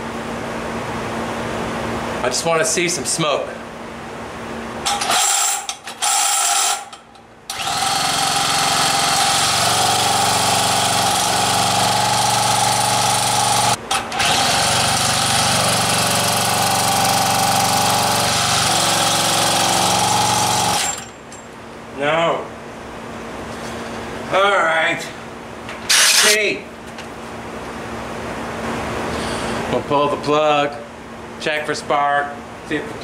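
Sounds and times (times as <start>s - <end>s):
cordless drill whirring: 7.5s - 10.2s.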